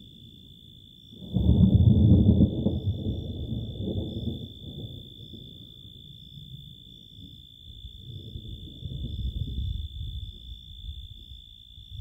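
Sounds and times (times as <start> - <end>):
thunder rumbling: 1.2 - 5.4, 8.0 - 10.6.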